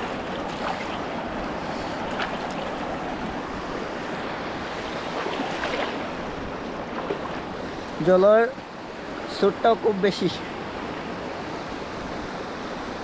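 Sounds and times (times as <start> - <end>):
river rushing over stones: 0.0 - 10.4.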